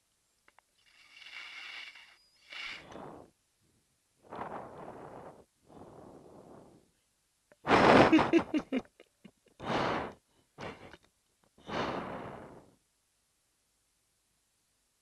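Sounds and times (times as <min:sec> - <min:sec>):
breathing through oxygen mask: 0:00.8 - 0:03.3, 0:09.6 - 0:10.9, 0:11.6 - 0:12.8.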